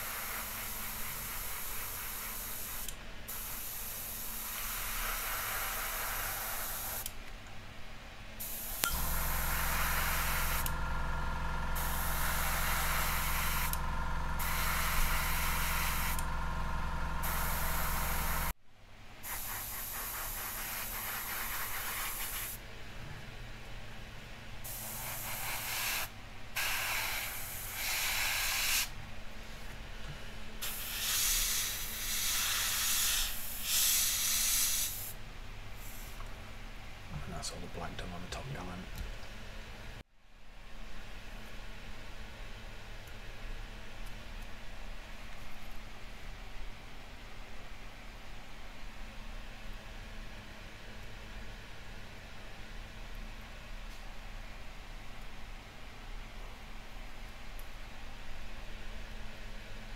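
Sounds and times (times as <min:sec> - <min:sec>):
airbrush spraying in hissing bursts: 0:00.0 - 0:07.1, 0:08.4 - 0:18.5, 0:19.2 - 0:22.6, 0:24.6 - 0:28.9, 0:30.6 - 0:35.2
steady low hum: 0:08.5 - 0:18.6.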